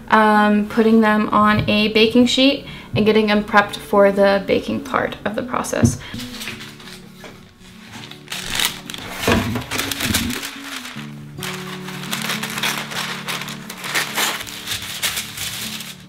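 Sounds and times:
background music: 0:00.8 - 0:16.0
paper crinkling: 0:06.1 - 0:16.0.

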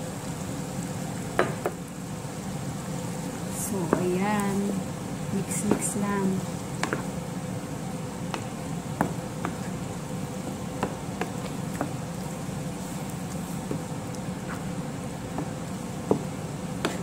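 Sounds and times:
low buzzing hum: 0:00.0 - 0:17.0
wooden spoon stirring thick sauce: 0:05.4 - 0:17.0.

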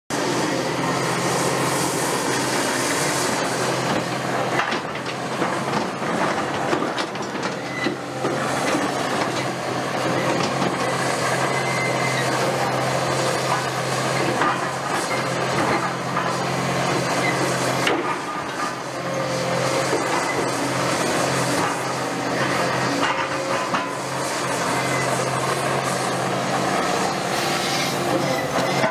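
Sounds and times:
excavator diesel engine running: 0:00.1 - 0:28.9
hydraulic hiss: 0:27.2 - 0:28.8.

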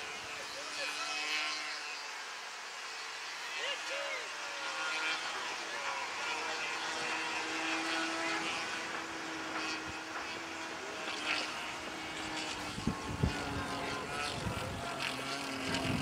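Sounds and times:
model airplane engine droning: 0:00.0 - 0:16.0
wind buffeting microphone: 0:12.2 - 0:16.0.

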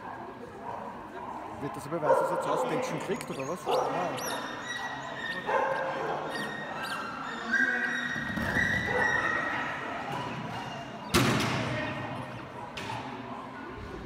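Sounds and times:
high drawn-out calls: 0:02.5 - 0:09.6.

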